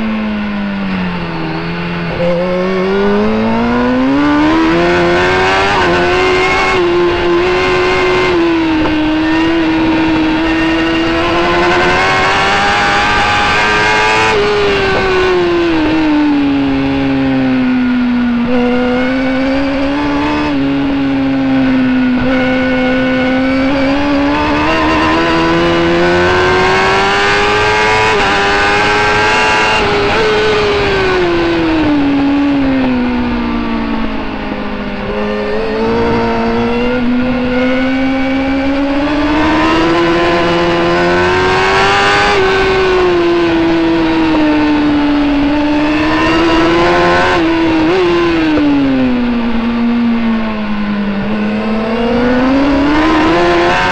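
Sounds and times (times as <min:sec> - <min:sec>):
motorbike engine revving: 0:00.0 - 0:53.9
wind and road noise: 0:00.0 - 0:53.9.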